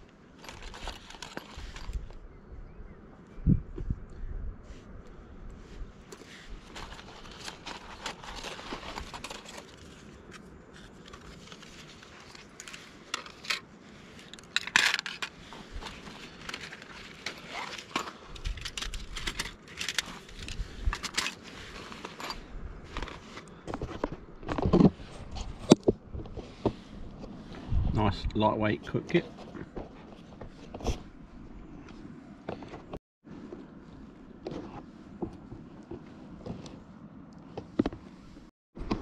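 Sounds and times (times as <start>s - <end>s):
rustling and crinkling of bags: 0.3s - 2.2s, 6.0s - 27.6s.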